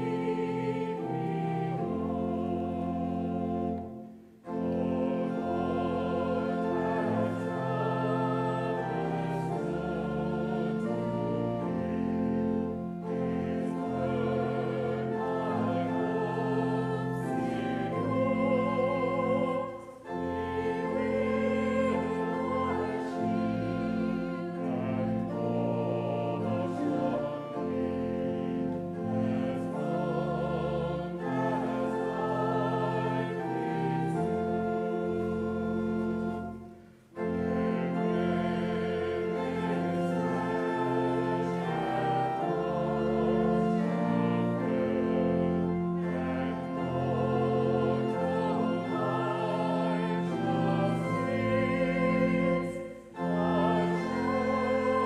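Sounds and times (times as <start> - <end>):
congregation singing a hymn: 0.0 - 55.0
instrumental accompaniment: 0.0 - 55.0.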